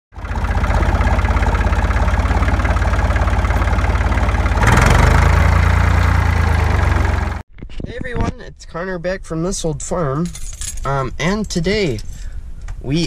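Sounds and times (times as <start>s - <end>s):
tractor engine idling: 0.1s - 7.4s.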